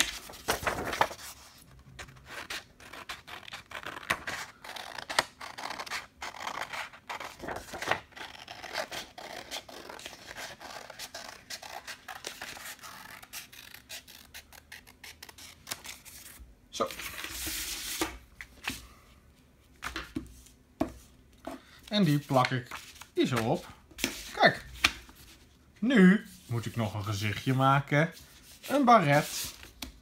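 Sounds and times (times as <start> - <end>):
paper rustling: 0.0 - 13.8, 21.8 - 25.5.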